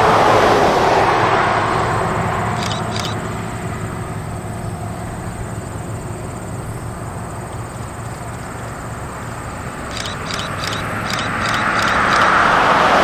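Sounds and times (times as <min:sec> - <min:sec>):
distant steam locomotive rumble: 0:00.0 - 0:13.0.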